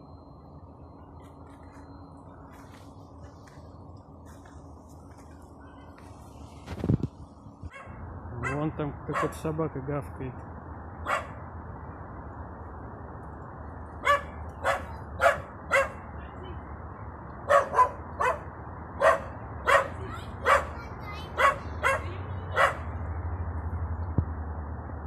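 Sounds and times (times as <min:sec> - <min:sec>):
dog barking: 0:07.7 - 0:09.4, 0:11.0 - 0:11.4, 0:14.0 - 0:16.0, 0:17.5 - 0:20.8, 0:21.4 - 0:22.9.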